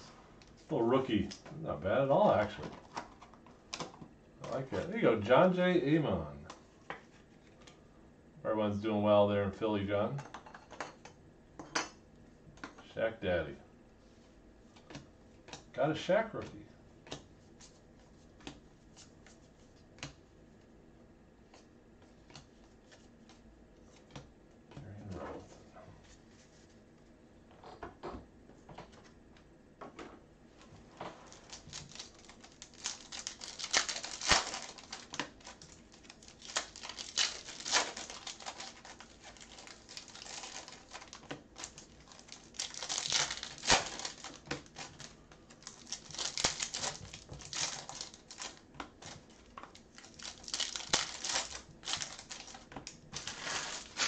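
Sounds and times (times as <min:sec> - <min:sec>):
plastic foil wrappers crinkling: 0:31.2 - 0:54.0.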